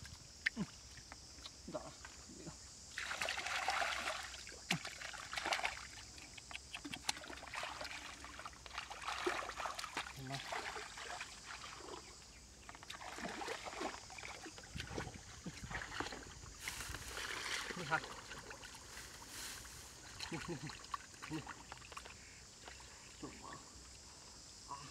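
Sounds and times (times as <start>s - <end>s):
wet splashes: 2.9s - 12.2s, 12.8s - 19.2s, 20.0s - 23.4s
hands squelching through mud: 3.0s - 12.0s, 12.8s - 18.9s.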